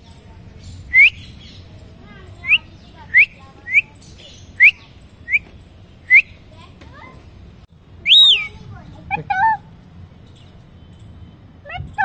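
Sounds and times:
parakeet chirping: 8.1s - 8.6s.

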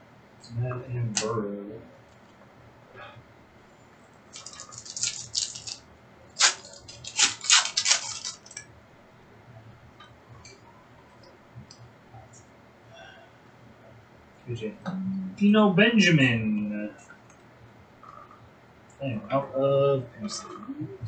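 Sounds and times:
cards clicking and rustling: 4.3s - 5.8s, 6.4s - 8.6s.

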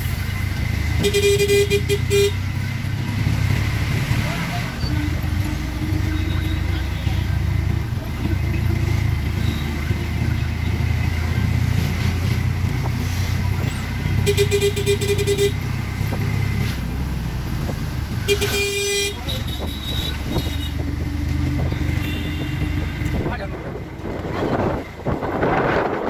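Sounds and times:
rickshaw engine rumbling: 0.0s - 26.0s
vehicle horn honking: 1.0s - 2.5s, 4.8s - 7.5s, 14.1s - 15.6s, 18.3s - 21.0s, 21.6s - 23.2s.

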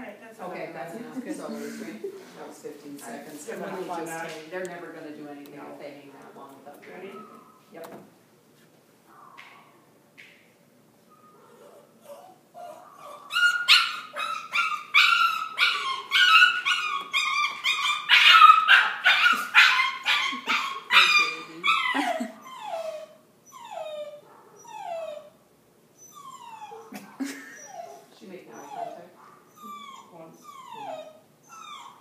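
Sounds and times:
puppy squealing and yelping: 11.1s - 25.4s, 26.0s - 32.0s
puppy whimpering: 11.1s - 25.4s, 26.0s - 32.0s.

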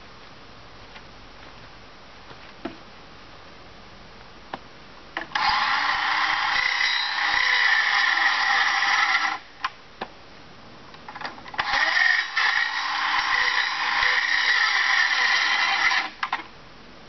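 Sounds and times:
power tool cutting wood: 5.4s - 9.5s, 11.6s - 16.4s.

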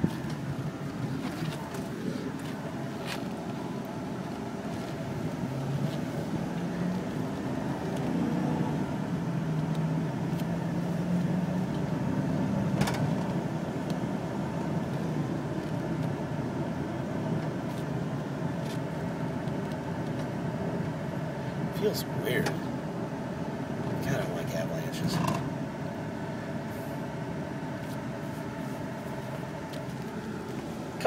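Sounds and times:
engine hum: 0.0s - 31.0s
road and tyre noise: 0.0s - 31.0s.

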